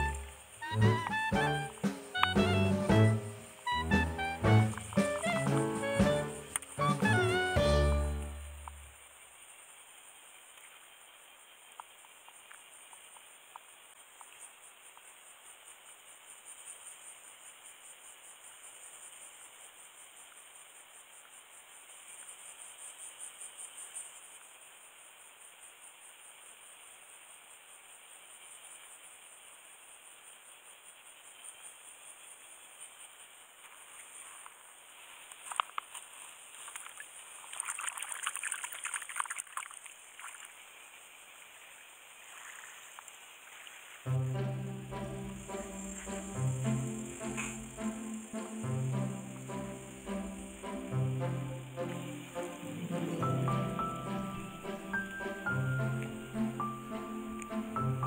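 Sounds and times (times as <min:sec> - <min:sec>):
soft hiss: 0:00.0 - 0:37.7, 0:39.8 - 0:58.0
insects chirring: 0:00.0 - 0:58.0
water lapping and trickling: 0:33.7 - 0:44.1
small irregular clicks: 0:35.2 - 0:40.0.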